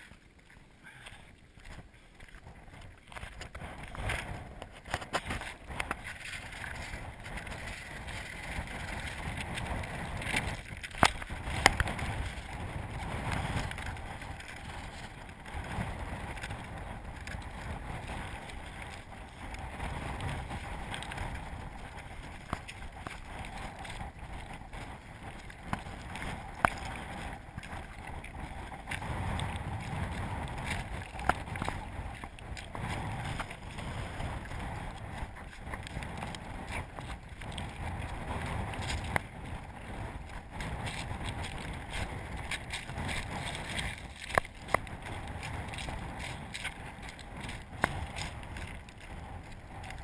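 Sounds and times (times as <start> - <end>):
wind rumbling on microphone: 0.0 - 50.0.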